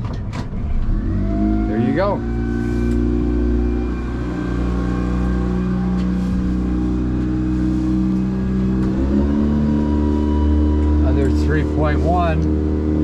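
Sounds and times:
outboard boat motor running: 0.8 - 13.0.

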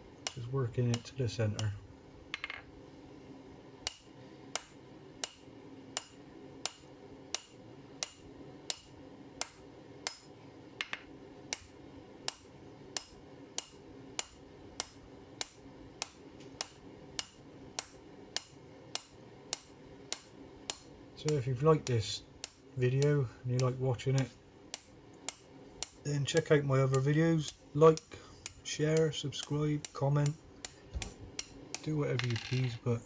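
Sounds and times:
steady low hum: 0.0 - 33.0
hammer striking hot steel: 6.0 - 10.2.

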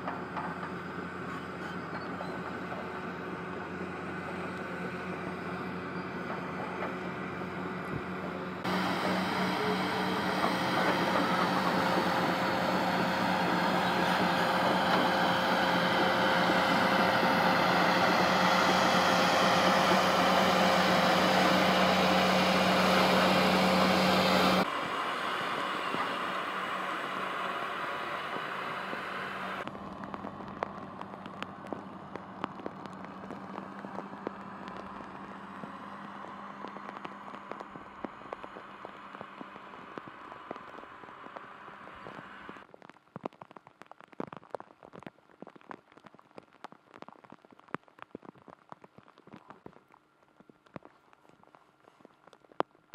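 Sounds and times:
engine idling: 0.0 - 42.6
rain hissing: 8.6 - 42.6
raindrops ticking: 29.6 - 52.9.

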